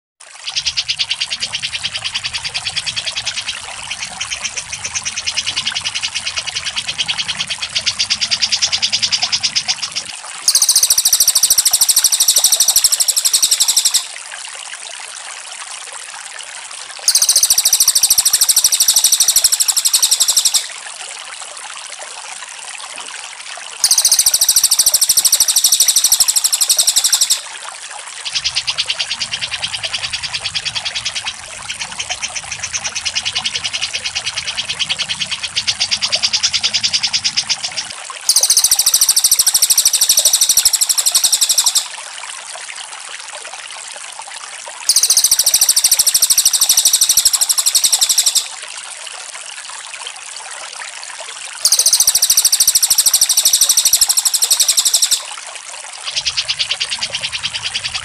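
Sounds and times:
rapid high bird chattering: 10.5 - 14.1, 17.1 - 20.7, 23.8 - 27.4, 32.9 - 41.9, 44.9 - 48.5, 51.6 - 55.3, 56.1 - 58.0
very high rapid bird trill: 10.5 - 14.1, 17.1 - 20.7, 23.8 - 27.4, 38.3 - 41.9, 44.9 - 48.5, 51.6 - 55.3.

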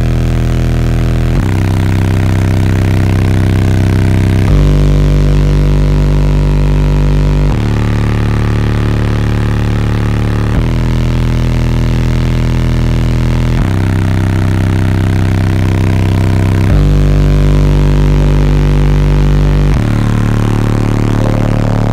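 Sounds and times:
deep subwoofer bass notes: 0.0 - 21.9.

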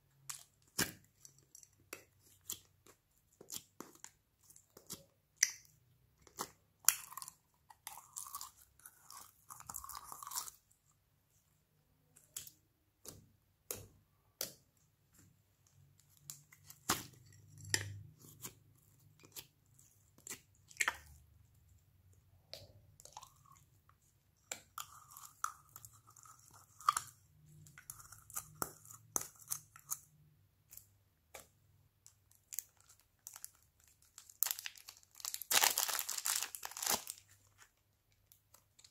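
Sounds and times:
plastic packet crinkling: 32.4 - 37.7.

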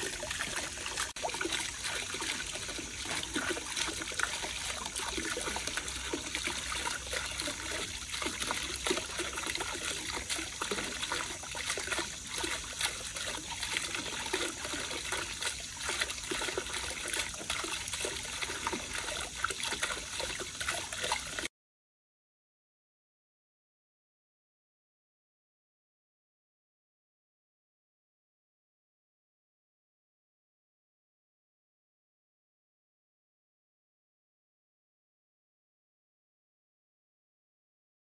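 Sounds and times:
fountain water splashing and trickling: 0.0 - 21.5.

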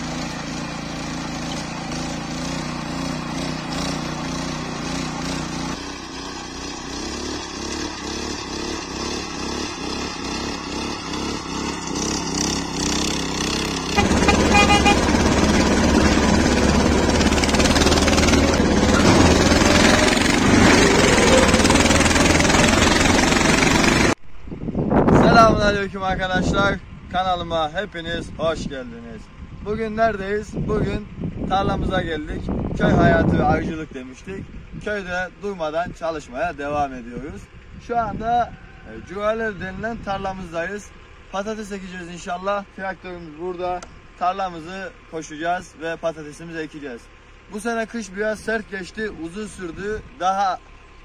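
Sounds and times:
rotary tiller engine under load: 0.0 - 24.2.

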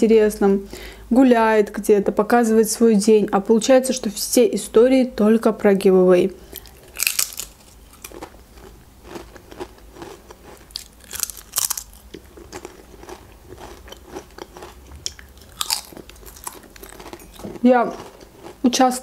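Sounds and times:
quiet chewing: 6.5 - 18.6
crisps crunching: 6.6 - 18.6.

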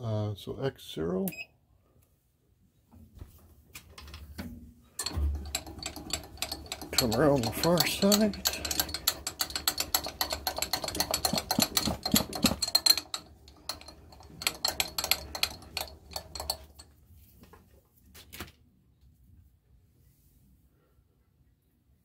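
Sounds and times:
milling machine feed clicks: 5.0 - 16.9.

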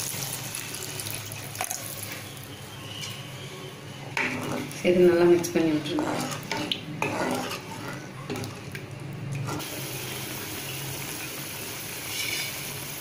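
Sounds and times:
spoon stirring and scraping pan: 0.6 - 9.7, 12.0 - 12.7.

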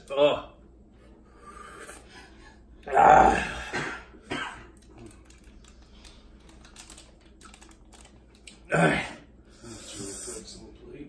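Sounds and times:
fingers clicking and crinkling: 4.8 - 8.6.

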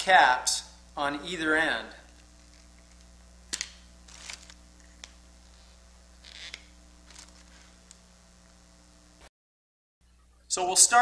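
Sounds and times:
faint steady hum: 0.0 - 9.3, 10.0 - 11.0
scratchy plastic rustles: 4.0 - 7.9.

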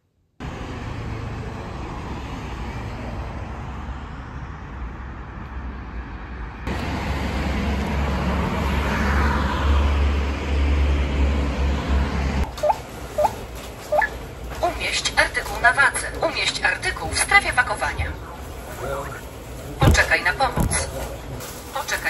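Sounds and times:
car passing by: 0.4 - 14.0
passing cars: 0.4 - 22.0.

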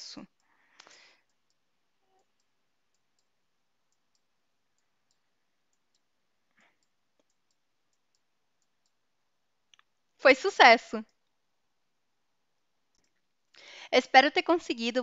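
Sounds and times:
very faint clicks: 0.3 - 9.0.

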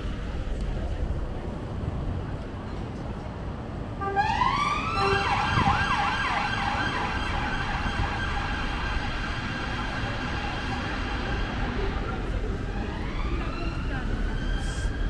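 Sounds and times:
low street noise: 0.0 - 15.0
emergency vehicle siren: 4.0 - 15.0.

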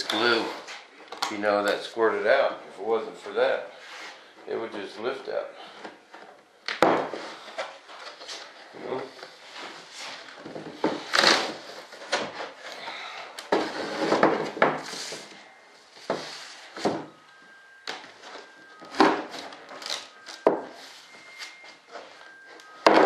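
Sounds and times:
parts rubbing and scraping on wood: 13.5 - 17.0.

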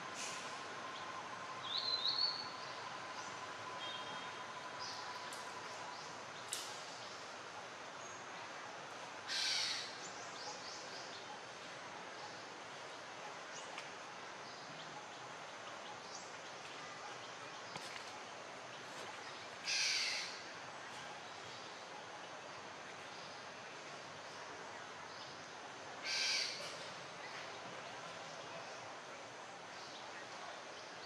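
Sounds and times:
steady background hiss: 0.0 - 31.0.

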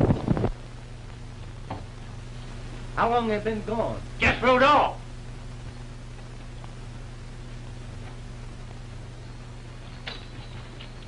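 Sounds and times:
film soundtrack hum and hiss: 0.0 - 11.0.

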